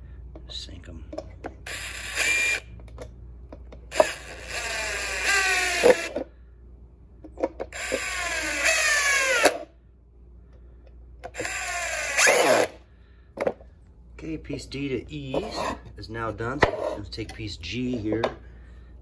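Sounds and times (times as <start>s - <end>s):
cordless drill driving screws: 1.6s - 2.7s, 3.9s - 6.2s, 7.7s - 9.7s, 11.3s - 12.8s.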